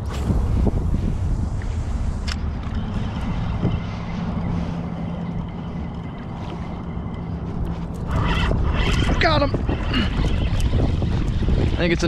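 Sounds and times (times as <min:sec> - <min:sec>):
steady low hum: 0:00.0 - 0:12.0
wind buffeting microphone: 0:00.0 - 0:12.0
water lapping: 0:02.8 - 0:12.0.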